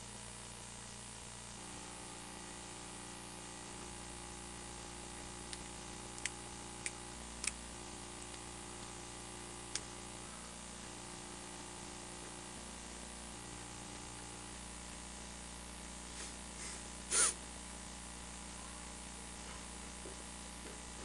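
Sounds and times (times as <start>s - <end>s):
steady hiss and low hum: 0.0s - 21.0s
small sharp clicks: 5.5s - 7.6s.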